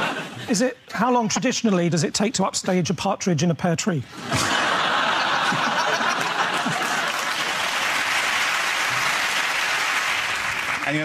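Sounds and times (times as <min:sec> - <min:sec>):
audience laughter: 0:00.0 - 0:00.5, 0:04.1 - 0:08.0
audience applauding: 0:04.4 - 0:11.0.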